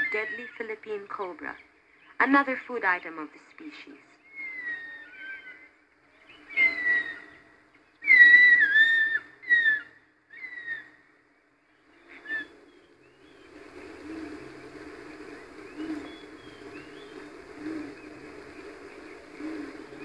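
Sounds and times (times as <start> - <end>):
faint low background hum: 0.0 - 20.0
eagle high whistled calls: 4.2 - 11.0, 12.0 - 20.0.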